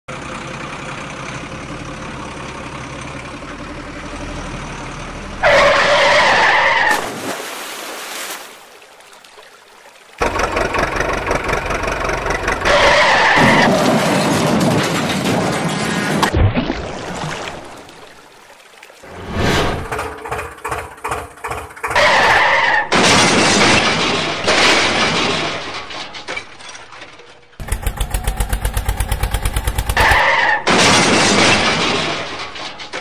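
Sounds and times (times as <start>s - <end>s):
truck engine running: 0.1s - 6.3s, 10.2s - 16.3s, 19.8s - 22.6s, 27.6s - 33.0s.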